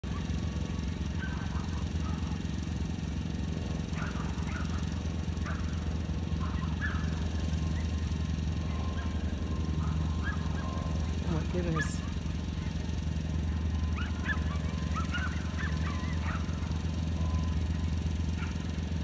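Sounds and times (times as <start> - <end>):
distant small engine running: 0.0 - 19.0.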